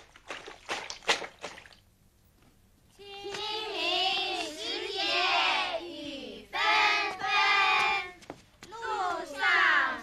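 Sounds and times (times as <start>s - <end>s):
children reciting in unison: 3.0s - 10.0s.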